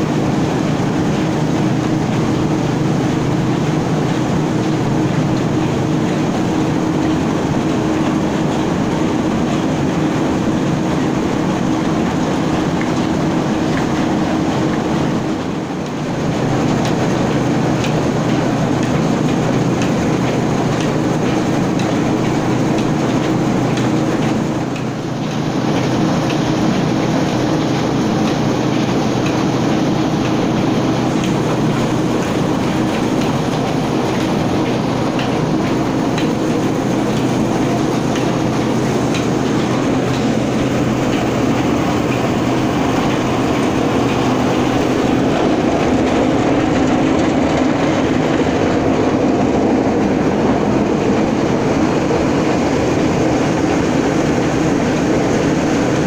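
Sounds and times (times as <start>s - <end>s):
flour mills rumbling: 0.0s - 56.0s
low motor hum: 0.0s - 56.0s.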